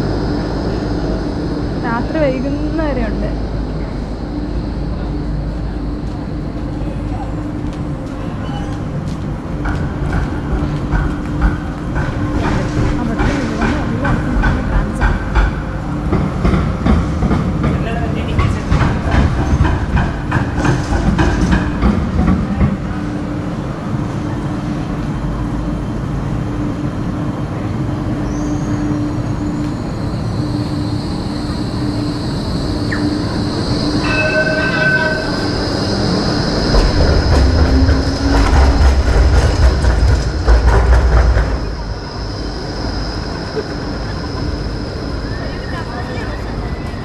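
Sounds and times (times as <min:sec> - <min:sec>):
tram motor hum and rumble: 0:00.0 - 0:47.0
high wheel squeal: 0:28.2 - 0:38.5.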